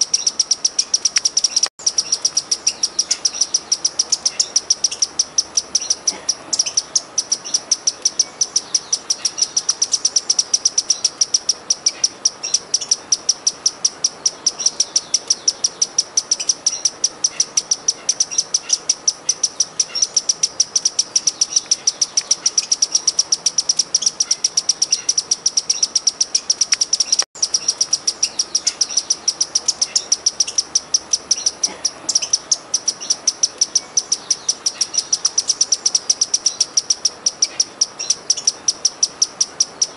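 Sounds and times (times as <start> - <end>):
hummingbird high chips: 0.0 - 39.9.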